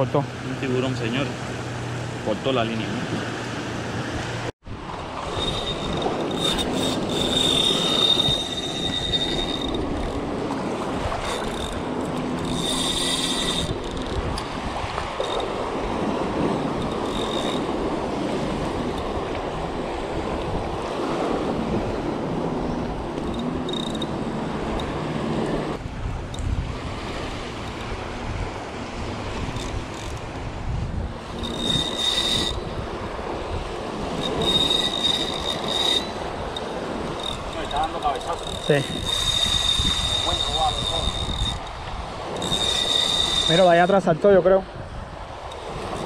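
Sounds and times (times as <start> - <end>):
wind buffeting microphone: 0.5 - 46.0
thin high whine: 5.3 - 14.2, 21.3 - 25.8, 31.2 - 32.9, 33.5 - 44.6.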